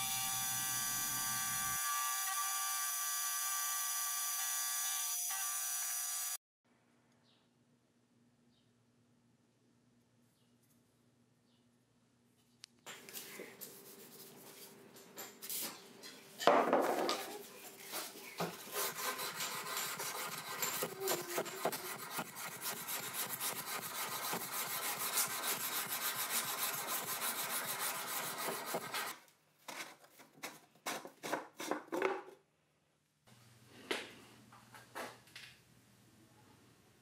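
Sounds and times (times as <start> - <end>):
sanding a knife blade: 18.6 - 29.1.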